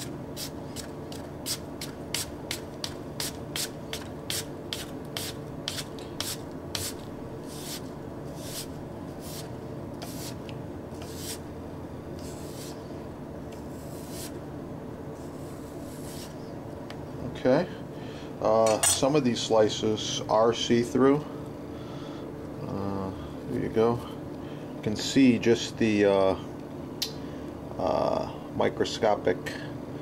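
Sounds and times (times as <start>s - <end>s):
knife slicing apple: 1.5s - 10.4s, 11.0s - 11.4s, 13.6s - 14.4s, 15.2s - 16.4s.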